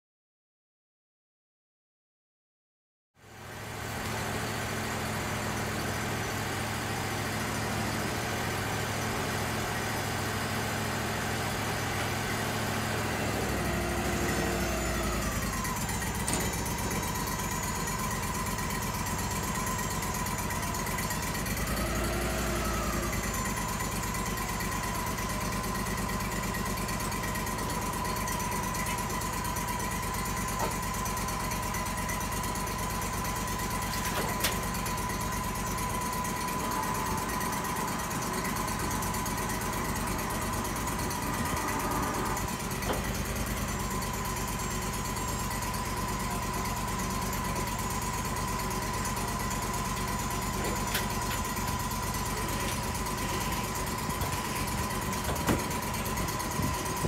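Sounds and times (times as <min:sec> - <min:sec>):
sawmill engine running: 0:03.2 - 0:57.0
hydraulic whine: 0:11.7 - 0:57.0.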